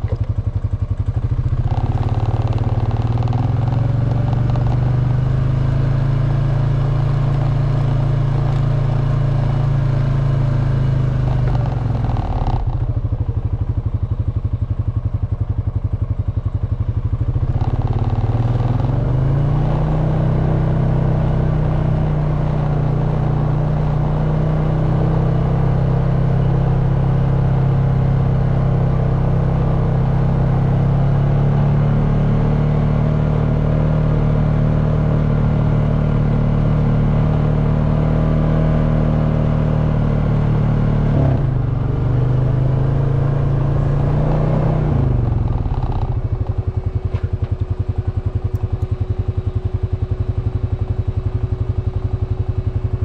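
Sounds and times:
atv engine running: 0.0 - 53.0.

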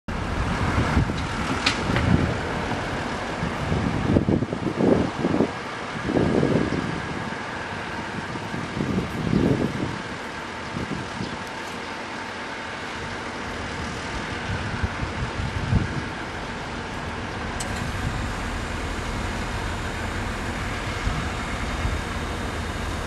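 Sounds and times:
engine thuds: 0.1 - 4.0, 15.8 - 23.0
diesel locomotive engine starting: 0.1 - 23.0.

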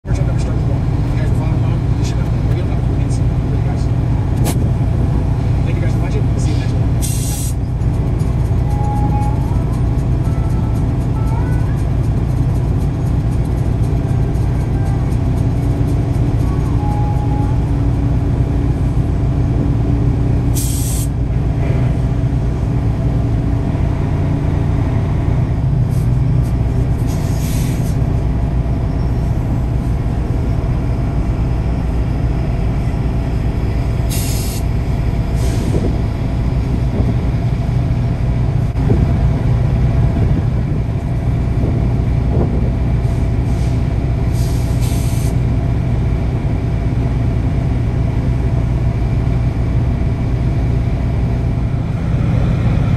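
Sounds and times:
vehicle engine low rumble: 0.0 - 52.9
short hisses: 7.0 - 7.6, 20.6 - 21.1, 27.1 - 28.0, 34.1 - 34.7, 44.4 - 45.4.

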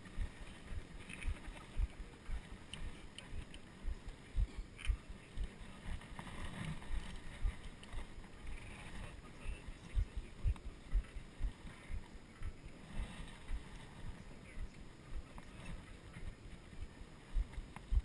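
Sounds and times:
faint ticks: 0.0 - 18.0
low thumps and rumble: 0.1 - 18.0.

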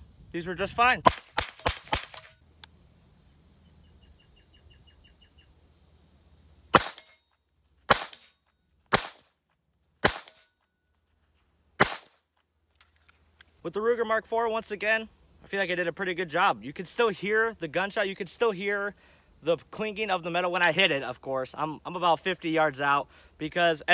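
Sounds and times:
pistol shots: 1.0 - 2.4, 6.8 - 7.2, 7.9 - 8.3, 8.9 - 9.2, 10.0 - 10.4, 11.8 - 12.1.

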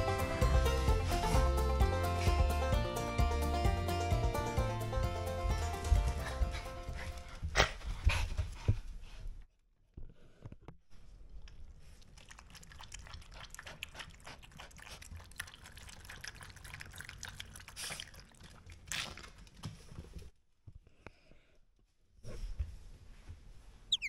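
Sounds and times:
dog lapping water: 12.1 - 19.6.

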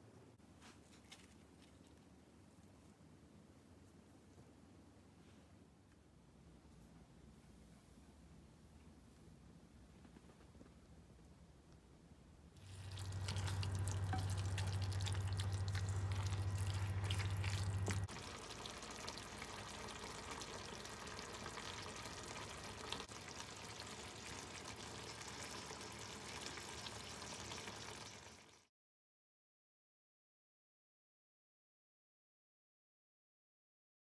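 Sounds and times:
steady low hum: 10.6 - 20.0
food sizzling and bubbling in a pot: 12.6 - 28.7.

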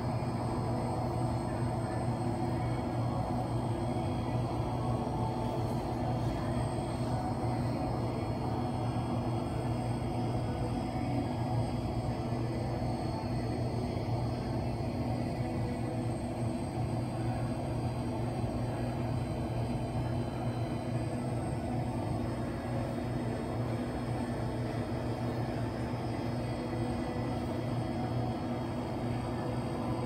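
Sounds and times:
swimming pool hall hum: 0.0 - 14.4.

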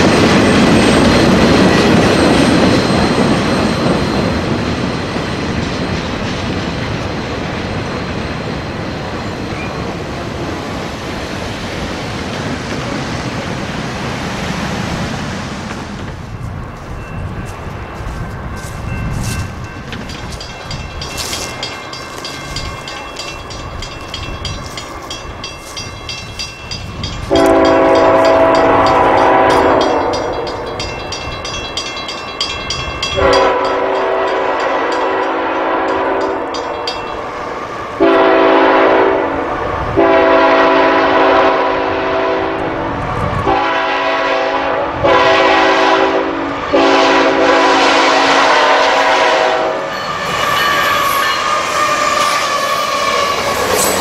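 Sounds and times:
train rumbling: 0.0 - 54.0
locomotive air horn blasts: 27.3 - 30.4, 33.2 - 36.5, 38.0 - 39.4, 40.0 - 42.8, 43.5 - 54.0.

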